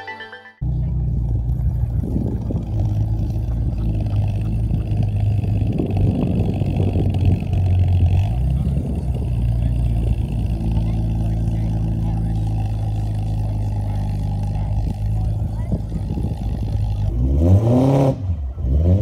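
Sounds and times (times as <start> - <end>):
car engine rumbling: 0.6 - 19.0.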